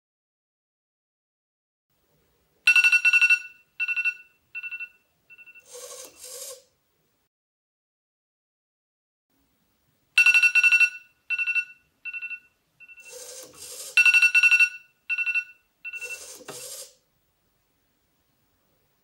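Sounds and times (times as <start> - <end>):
phone alarm beeping: 2.7 - 6.5, 10.2 - 16.9
servo whirring: 5.6 - 6.7, 13.0 - 14.0, 16.0 - 17.0.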